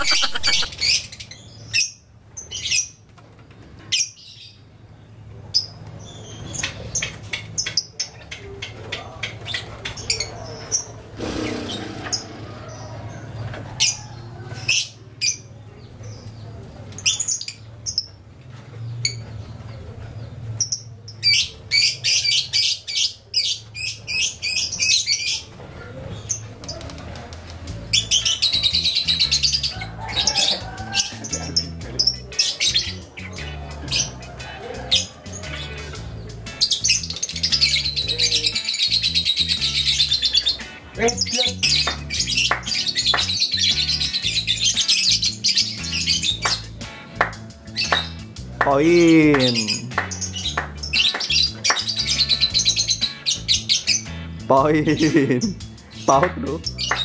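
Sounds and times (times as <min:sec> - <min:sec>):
rapid bird chattering: 0:00.0 - 0:01.4, 0:06.3 - 0:13.0, 0:27.9 - 0:57.0
lovebirds chirping: 0:00.0 - 0:03.0, 0:35.4 - 0:57.0.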